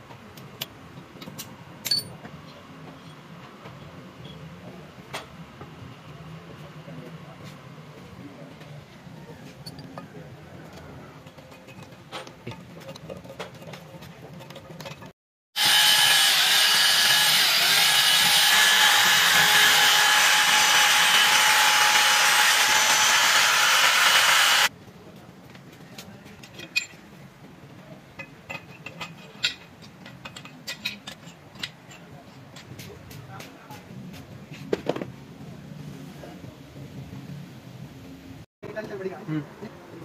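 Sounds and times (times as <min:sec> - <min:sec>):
rotary power tool whining: 0:15.6 - 0:24.7
metal parts clicking and knocking: 0:28.2 - 0:32.7.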